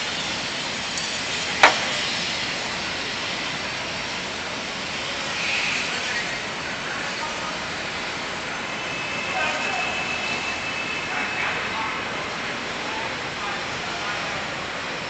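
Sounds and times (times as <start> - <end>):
rushing street noise: 0.0 - 15.0
sharp pop: 1.6 - 2.2.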